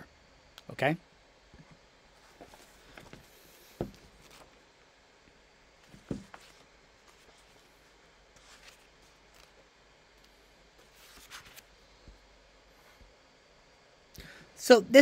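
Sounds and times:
soft thump: 5.9 - 6.4.

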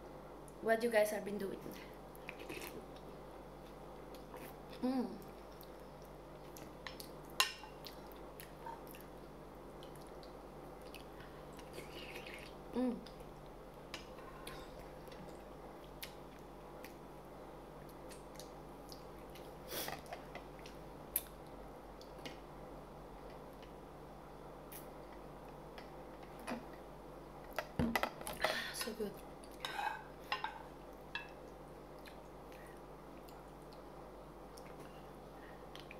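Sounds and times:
person humming: 4.8 - 5.3, 12.7 - 13.2.

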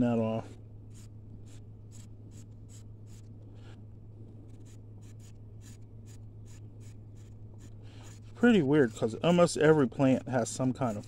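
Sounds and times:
steady low hum: 0.0 - 11.0
knife scraping leaf: 4.5 - 11.0.

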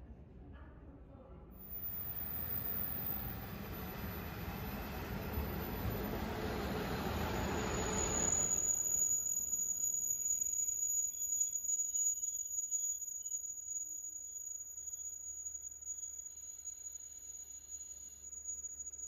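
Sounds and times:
high-pitched brake squeal: 1.6 - 19.0
diesel train rumbling: 1.7 - 9.1.

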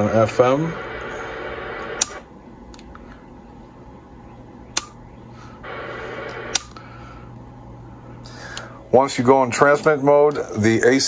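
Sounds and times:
steady low hum: 0.0 - 11.0
sharp switch clicks: 4.7 - 5.0, 6.5 - 6.8.

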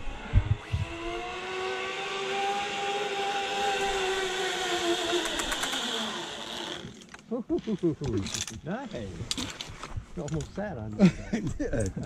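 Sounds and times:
low thumps: 0.0 - 1.2
zipline pulleys whining on cable: 0.0 - 7.1.

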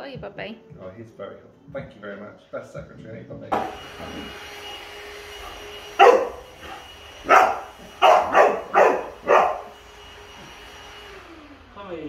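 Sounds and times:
vacuum cleaner motor humming: 3.5 - 12.0
dog barking: 5.4 - 9.8.

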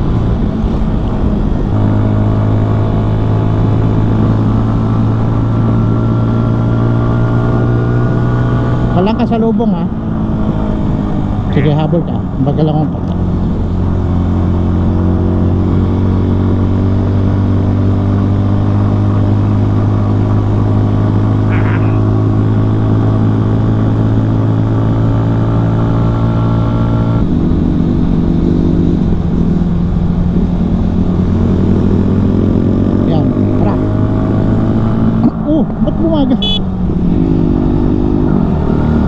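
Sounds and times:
motorcycle engine running: 13.2 - 26.4, 27.3 - 39.0.

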